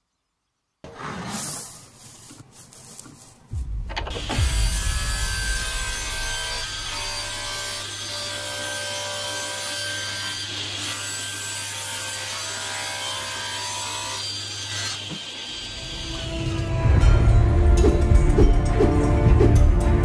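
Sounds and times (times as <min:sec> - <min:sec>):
saw blade cutting wood: 0:04.1 - 0:16.4
table saw motor whine: 0:13.6 - 0:16.6.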